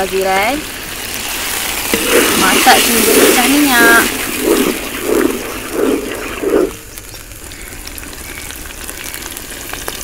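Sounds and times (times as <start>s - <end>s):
paste sizzling with small pops: 0.0s - 10.0s
spatula scraping a wok: 1.3s - 6.8s.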